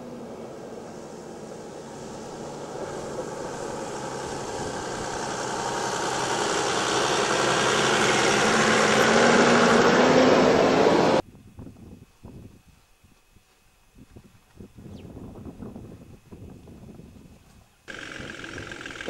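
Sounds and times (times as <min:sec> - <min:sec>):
diesel truck engine passing: 0:00.0 - 0:11.2, 0:17.9 - 0:19.0.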